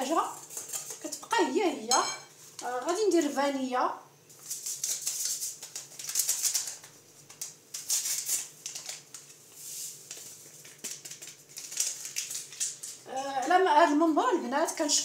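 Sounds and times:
paper sachet tearing: 4.3 - 13.0
dry crinkling rustle: 4.3 - 13.1.

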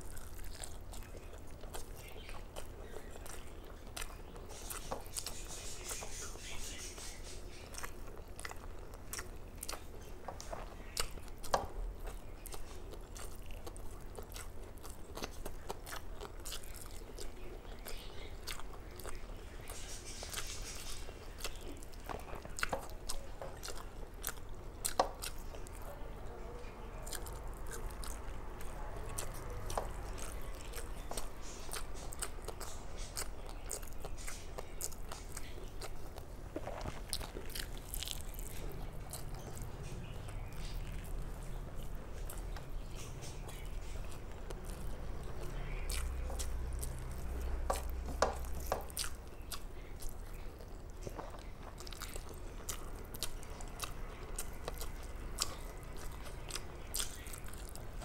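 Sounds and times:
person chewing and smacking: 0.0 - 58.0.

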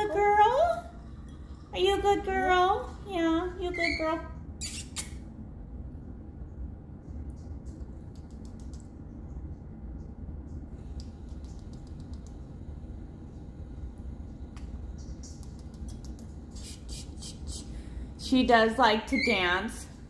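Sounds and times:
steady low hum: 0.0 - 20.0
faint soft clicks: 10.5 - 12.4.

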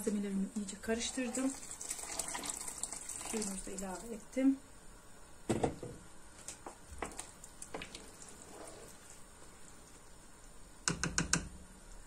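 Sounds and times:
wet sloshing of sauce: 7.0 - 10.1
spoon tapping a pot: 10.8 - 11.5.

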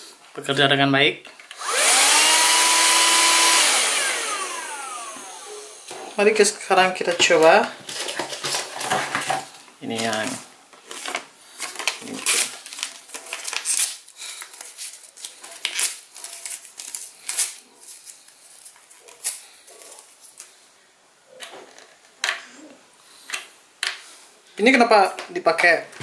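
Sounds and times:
paper tearing: 9.9 - 20.4.

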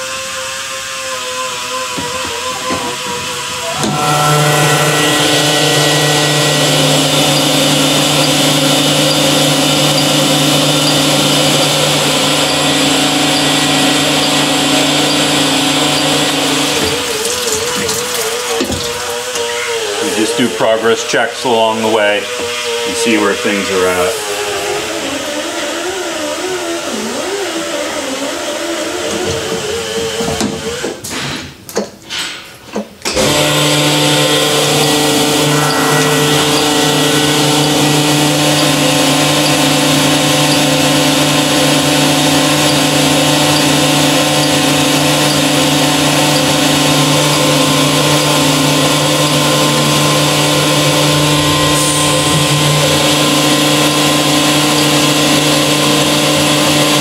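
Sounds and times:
honing machine humming: 3.4 - 20.7, 33.2 - 57.0.

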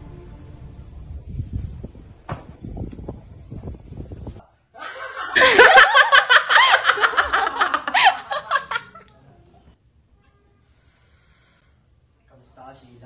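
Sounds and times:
person laughing loudly: 4.8 - 9.0.

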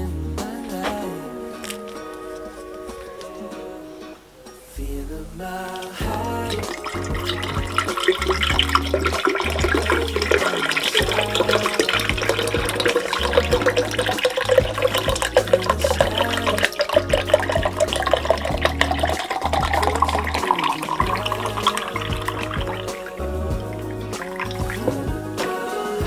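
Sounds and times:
bass notes of background music: 0.0 - 3.7, 4.8 - 26.0
juice pouring into glass carafe: 5.7 - 25.2.

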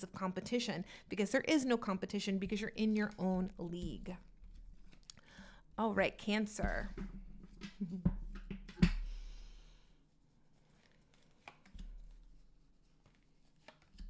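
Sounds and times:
cards rustling: 10.6 - 14.0
cards clicking and tapping: 11.1 - 12.2, 13.0 - 14.0.

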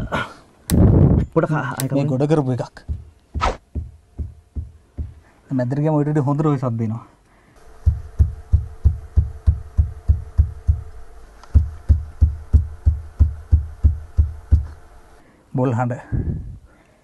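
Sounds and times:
fist thumping on earth floor: 2.9 - 5.2.

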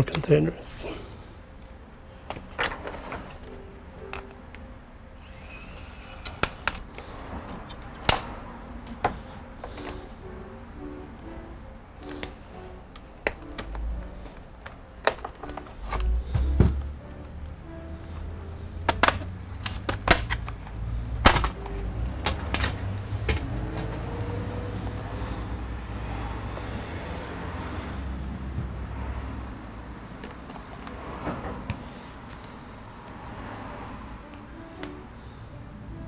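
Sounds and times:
low handling rumble: 6.8 - 27.5
laptop clicks and knocks: 18.8 - 20.6.

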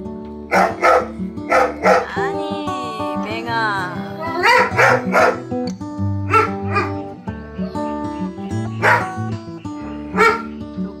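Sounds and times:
light background music: 0.0 - 11.0
dog barking: 0.5 - 2.2, 4.3 - 5.5, 6.2 - 7.2, 8.8 - 9.3, 10.1 - 10.6.

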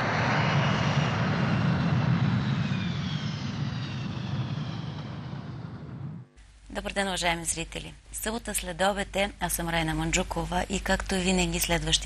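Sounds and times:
low steady rumble with hiss: 6.2 - 12.0.

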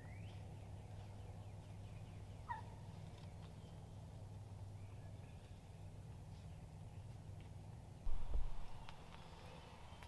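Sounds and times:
low steady hum: 0.0 - 10.0
distant turkey gobbling: 2.4 - 2.9.

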